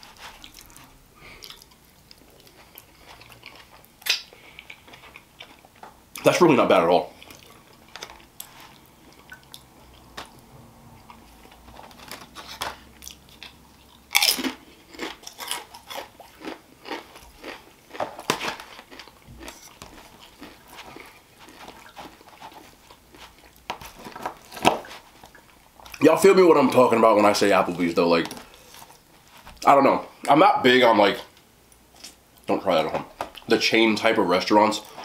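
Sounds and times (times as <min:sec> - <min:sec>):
man chewing food: 0:00.0 - 0:06.2, 0:07.1 - 0:26.0, 0:31.7 - 0:32.5.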